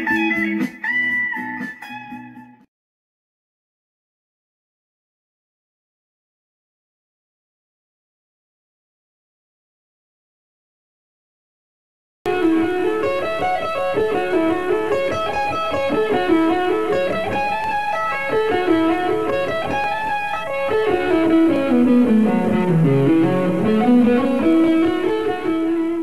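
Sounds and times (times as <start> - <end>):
fast electric guitar lick: 12.3 - 26.0.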